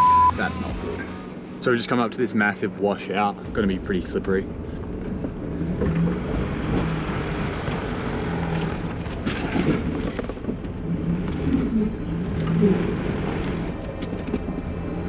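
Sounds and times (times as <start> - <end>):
diesel engine running at low revs: 0.0 - 15.0.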